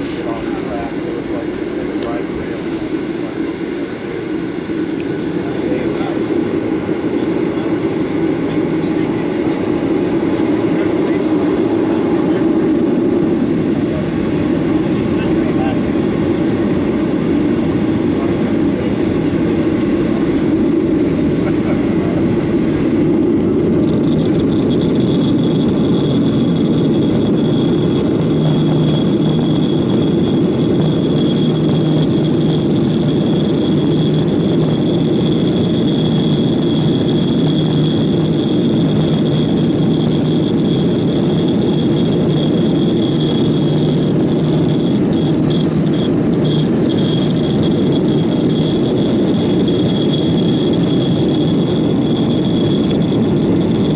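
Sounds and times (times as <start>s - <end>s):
aircraft engines rumbling: 0.0s - 53.9s
thin high whine: 0.0s - 53.9s.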